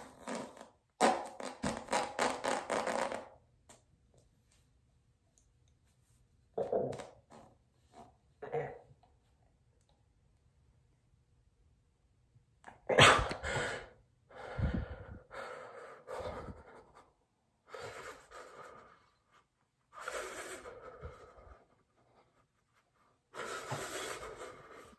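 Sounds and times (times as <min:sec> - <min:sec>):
puff of breath: 0:13.0 - 0:17.1, 0:20.0 - 0:21.7, 0:23.4 - 0:24.9.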